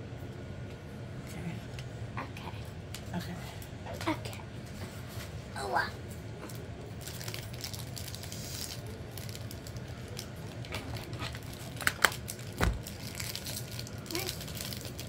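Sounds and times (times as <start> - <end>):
plastic packaging crinkling: 6.4 - 15.0.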